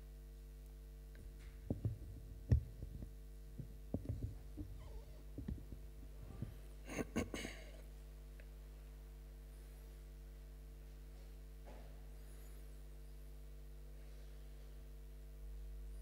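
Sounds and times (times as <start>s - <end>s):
steady low hum: 0.0s - 16.0s
microphone handling knocks: 1.2s - 7.4s.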